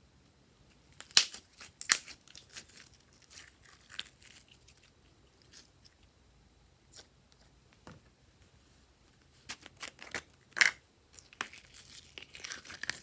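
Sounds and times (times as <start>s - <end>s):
slime popping and crackling: 1.0s - 4.8s, 11.2s - 13.0s.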